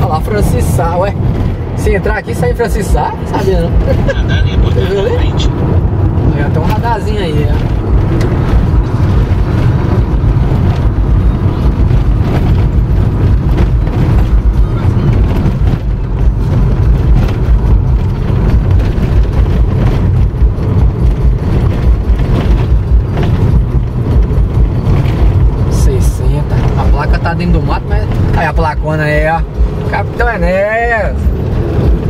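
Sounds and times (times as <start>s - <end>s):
car cabin road rumble: 0.0s - 32.0s.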